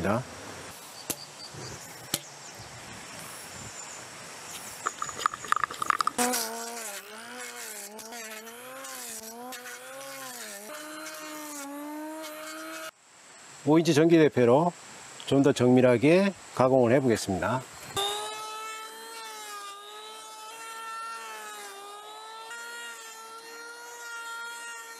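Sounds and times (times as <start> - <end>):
faint hiss: 0.0 - 18.6
angle grinder cutting wood: 4.6 - 12.9, 17.9 - 24.9.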